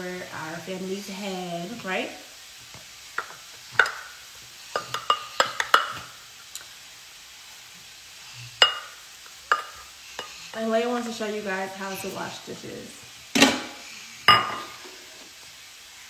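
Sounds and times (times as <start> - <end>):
dishes clinking in sink: 3.2 - 4.1, 8.6 - 10.3, 13.4 - 15.0.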